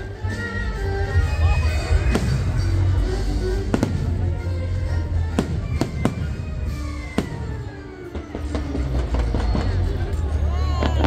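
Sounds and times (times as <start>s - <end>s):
fireworks bangs: 1.8s - 11.0s.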